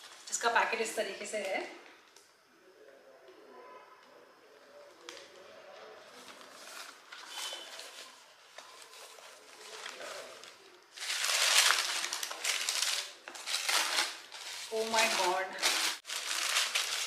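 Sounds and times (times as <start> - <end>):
tissue paper crinkling: 6.1 - 17.0.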